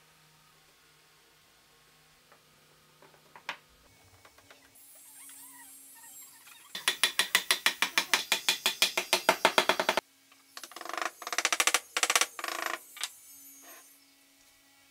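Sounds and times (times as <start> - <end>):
rapid ratchet-like clicking: 6.7 - 10.0.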